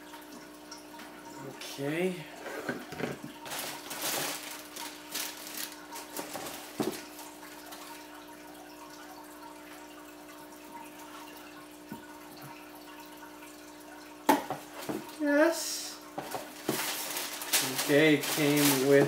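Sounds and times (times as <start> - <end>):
aquarium filter hum and trickle: 0.0 - 19.0
tissue paper rustling: 3.4 - 7.3, 16.3 - 19.0.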